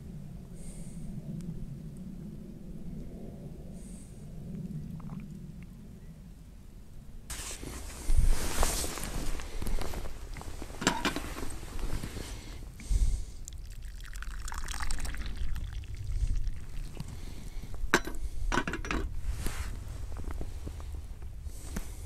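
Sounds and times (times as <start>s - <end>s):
water pouring into a pot: 13.4s - 17.2s.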